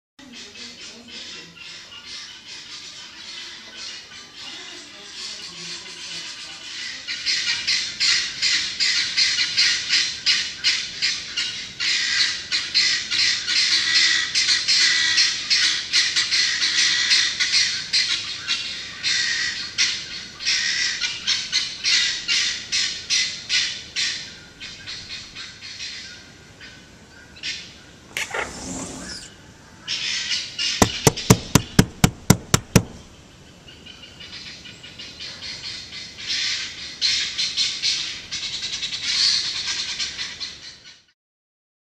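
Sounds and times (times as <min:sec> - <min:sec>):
guinea fowl cackling: 0:00.2 - 0:41.1
sharp loud clicks: 0:30.8 - 0:33.0.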